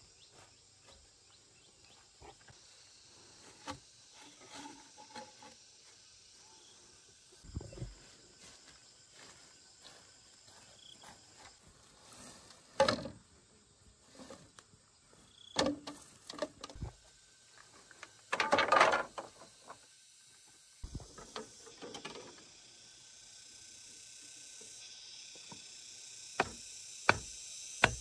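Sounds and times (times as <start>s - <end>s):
bamboo poles knocking and clattering: 12.8s - 13.2s, 15.6s - 16.9s, 18.0s - 19.8s.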